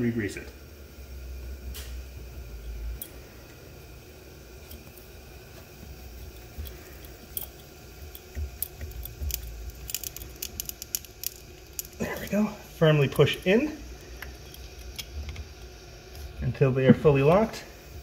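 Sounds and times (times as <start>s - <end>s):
connector clicking and rubbing: 5.8s - 12.3s.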